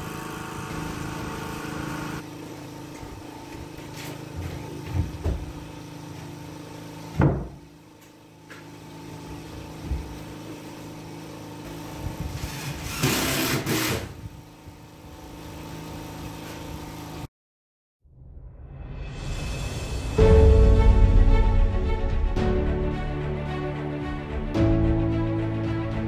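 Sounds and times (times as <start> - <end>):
steady engine hum: 0.0 - 13.0
knocks on wooden wall: 7.2 - 7.6.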